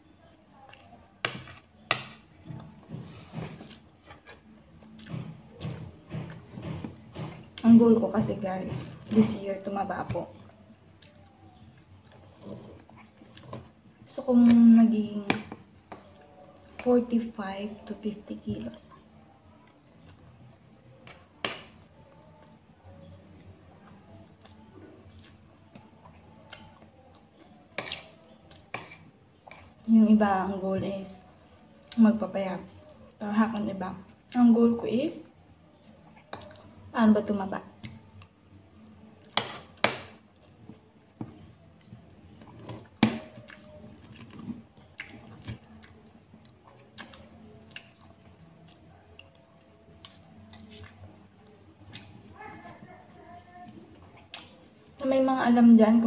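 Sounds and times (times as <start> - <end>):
chewing: 10.4 - 14.0, 23.3 - 29.8, 35.8 - 36.8, 39.2 - 55.0
cutlery tapping and scraping on plate: 27.8 - 29.7.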